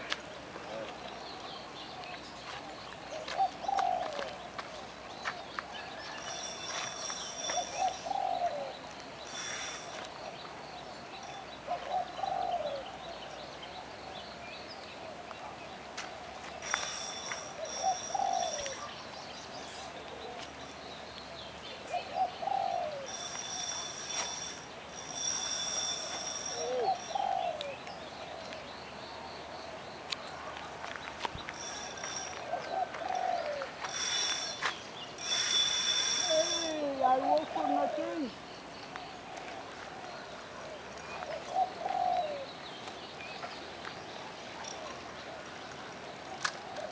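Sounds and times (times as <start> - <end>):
small birds chirping: 0.1 - 46.9
dove cooing: 3.2 - 4.3, 6.1 - 10.0, 11.7 - 12.9, 16.6 - 18.9, 21.9 - 28.4, 31.6 - 38.4, 41.2 - 42.5
fishing reel whirring: 23.1 - 26.8, 31.6 - 32.4, 33.8 - 37.0.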